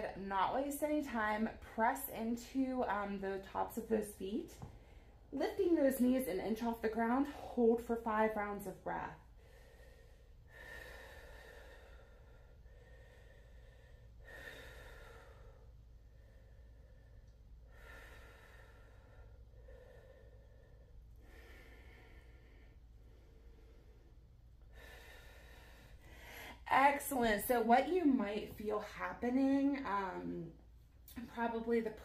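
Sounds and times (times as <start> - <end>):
woman breathing slowly: 4.5 - 5.3, 9.2 - 26.7.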